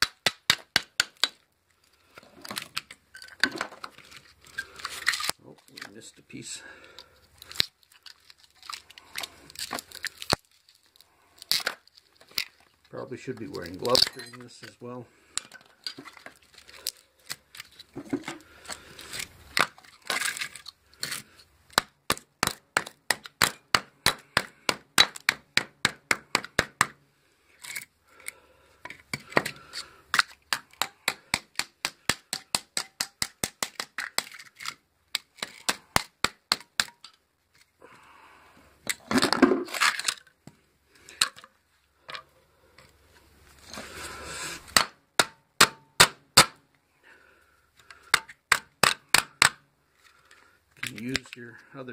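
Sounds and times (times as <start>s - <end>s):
metal core crunching scrape: 2.1s - 21.8s, 33.9s - 36.0s, 38.8s - 40.4s, 41.0s - 44.9s, 50.0s - 51.5s.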